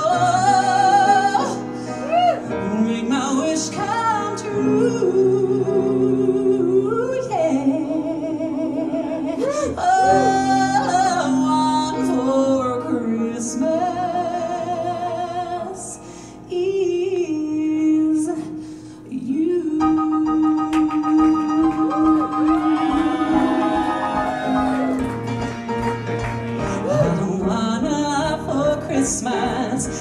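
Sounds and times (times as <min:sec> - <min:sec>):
musical accompaniment: 0:18.0 - 0:30.0.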